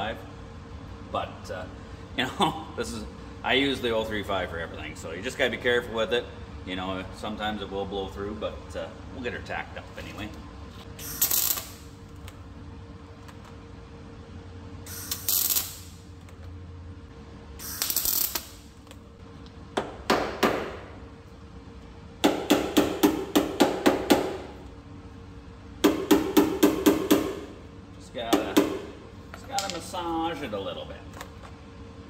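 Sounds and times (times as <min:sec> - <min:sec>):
welder crackling hisses: 0:11.0 - 0:12.0, 0:14.9 - 0:16.0, 0:17.6 - 0:18.7.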